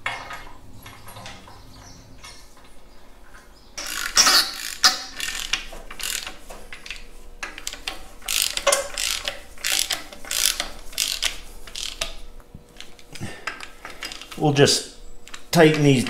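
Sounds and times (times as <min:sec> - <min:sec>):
ratchet wrench clicking: 0:03.8 - 0:12.2.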